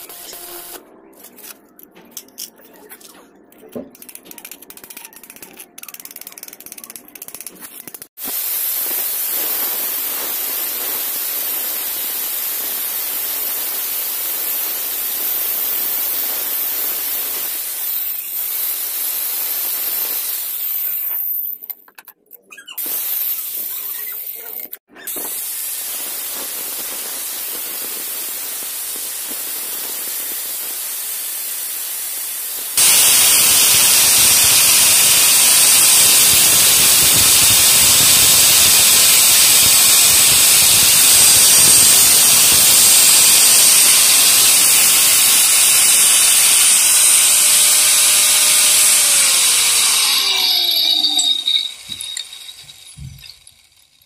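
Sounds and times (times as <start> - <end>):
angle grinder cutting steel: 0.0 - 0.8, 22.8 - 53.8
motor winding down whine: 0.0 - 0.8, 32.6 - 53.5.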